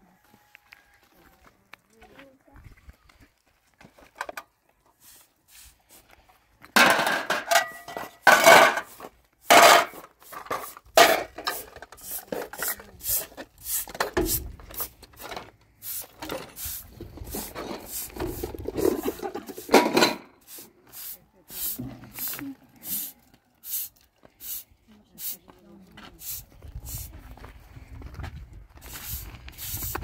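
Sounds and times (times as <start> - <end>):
metal pots and dishes clattering: 6.8 - 8.9, 9.5 - 10.0, 11.0 - 11.8, 18.8 - 20.3.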